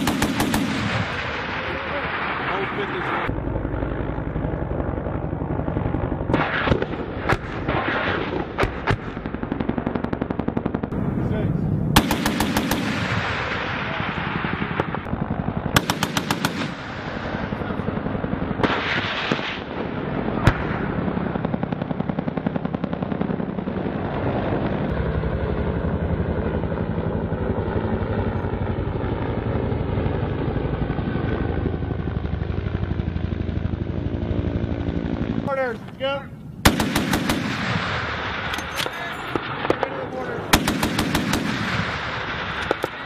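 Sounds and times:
automatic cannon fire: 0.0s - 2.9s, 5.9s - 11.0s, 11.9s - 23.7s, 36.6s - 43.0s
sharp crack: 35.8s - 43.0s.

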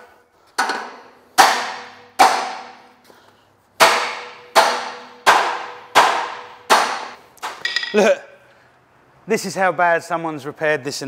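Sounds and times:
hammer striking steel: 0.6s - 3.0s, 3.8s - 8.2s.

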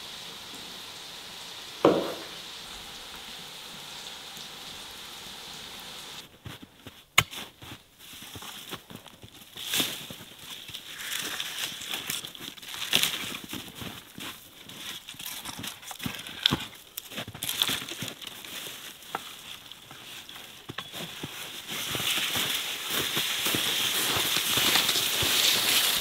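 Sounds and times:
steady hiss: 0.0s - 6.3s, 21.2s - 26.0s
footsteps crunching in snow: 6.2s - 26.0s.

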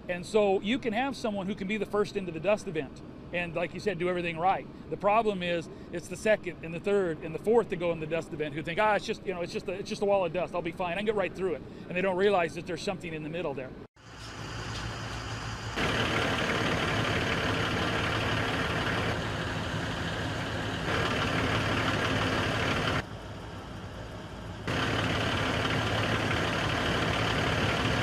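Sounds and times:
truck engines idling: 14.0s - 28.0s.

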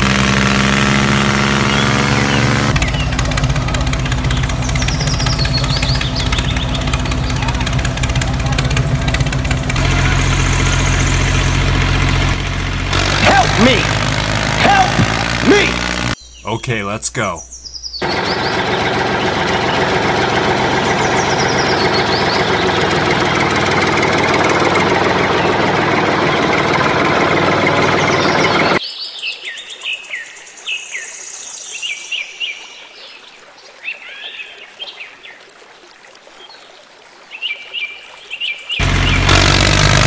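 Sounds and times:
small engine running: 0.0s - 16.2s, 18.0s - 28.8s, 38.8s - 40.0s
birds chirping: 0.7s - 28.8s, 38.4s - 40.0s.

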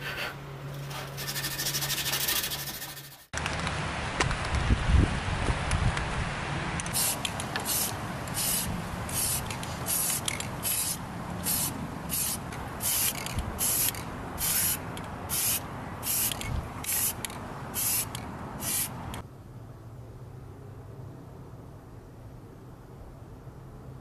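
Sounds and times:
spray-paint can hissing: 6.9s - 17.2s, 17.8s - 19.0s.

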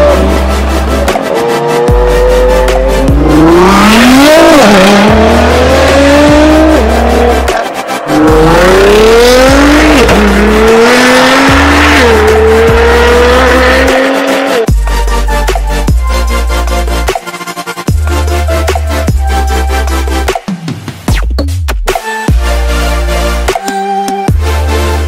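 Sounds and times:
sports car engine accelerating: 0.0s - 14.7s
bass-heavy music: 0.0s - 25.0s.

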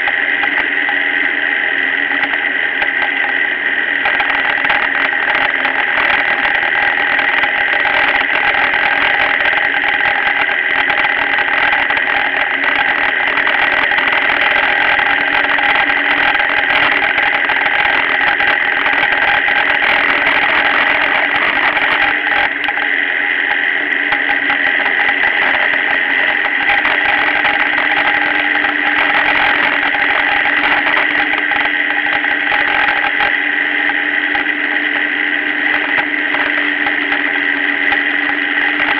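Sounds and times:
motorcycle engine running: 0.0s - 38.9s
wind and road noise: 0.0s - 38.9s.

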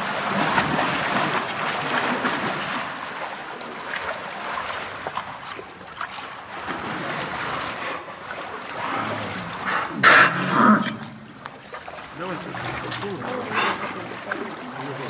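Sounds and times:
water splashing: 0.0s - 15.0s
dolphin blowhole breath: 7.6s - 11.1s.

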